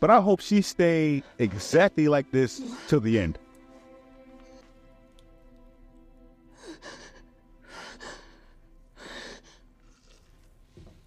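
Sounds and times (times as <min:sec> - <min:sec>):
sustained music chord: 0:00.1 - 0:10.1
heavy gasping breaths: 0:06.5 - 0:10.6.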